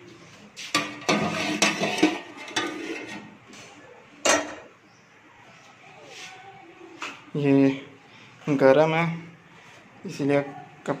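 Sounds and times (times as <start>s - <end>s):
metal pot lid clattering: 0.7s - 3.4s, 4.2s - 4.7s.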